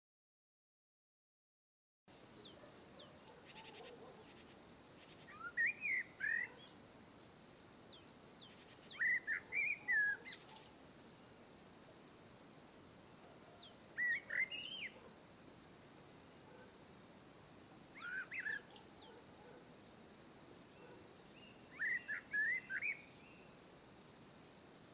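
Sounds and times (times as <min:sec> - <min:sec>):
bird chirping: 0:02.1 - 0:06.8, 0:07.9 - 0:11.7, 0:13.3 - 0:15.1, 0:17.9 - 0:19.6, 0:20.7 - 0:23.6.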